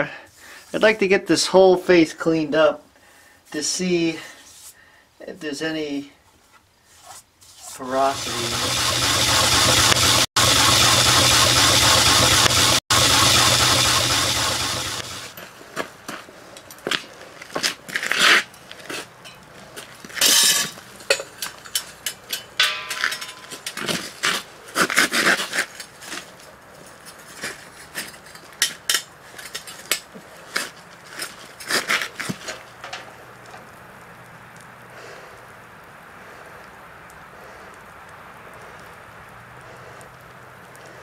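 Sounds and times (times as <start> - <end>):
molten metal pouring hiss: 7.8 - 15.4
metal tools clinking and scraping: 19.2 - 19.5, 20.2 - 33.1.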